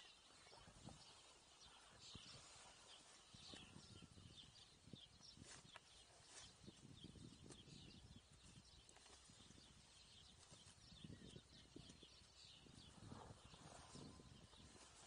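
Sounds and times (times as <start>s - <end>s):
small birds chirping: 0.0s - 15.0s
cow chewing grass: 12.9s - 15.0s.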